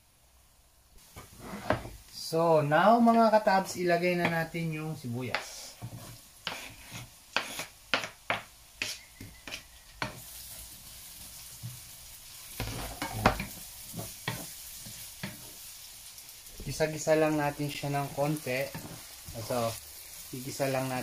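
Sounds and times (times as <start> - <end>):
onions sizzling in oil: 0.0 - 21.0
scraping on cutting board: 1.2 - 2.0, 5.7 - 10.2, 12.6 - 14.5.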